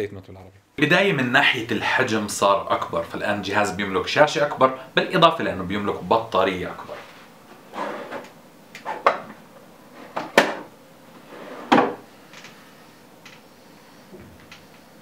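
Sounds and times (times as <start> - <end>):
objects knocking on a desk: 8.9 - 9.4, 10.2 - 10.7, 11.7 - 12.0.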